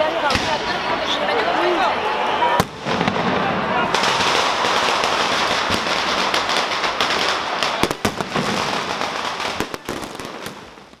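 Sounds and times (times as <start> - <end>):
fireworks crackling: 0.0 - 11.0
sharp firework cracks: 2.6 - 11.0.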